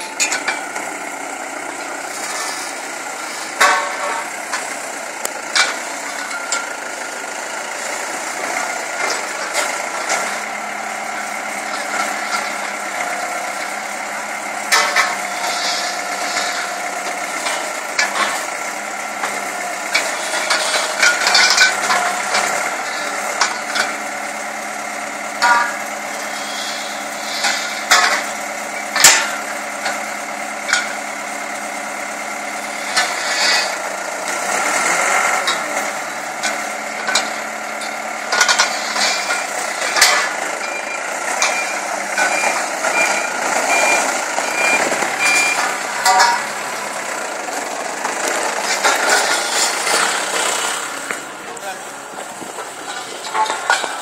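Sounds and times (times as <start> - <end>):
metallic clanks of steel pipes: 0.0 - 0.8, 3.5 - 6.8, 14.6 - 18.5, 19.2 - 24.0, 25.4 - 31.1, 35.4 - 46.6, 48.5 - 54.0
forklift engine running: 0.0 - 54.0
reversing beeper: 40.6 - 46.6.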